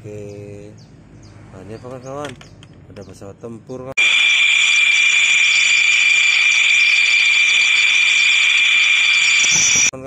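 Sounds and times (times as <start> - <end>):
jet engines whining: 4.0 - 9.9.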